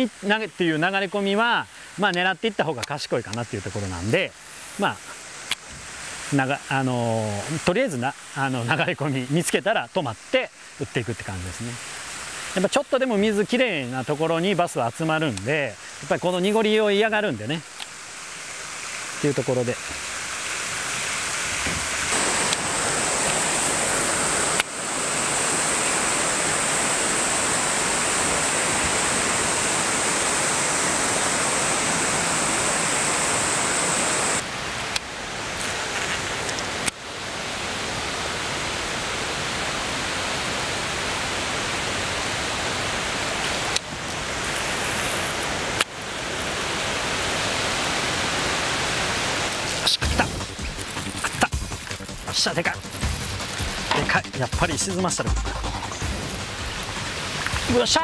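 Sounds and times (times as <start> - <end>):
waterfall rushing into pool: 0.0 - 58.0.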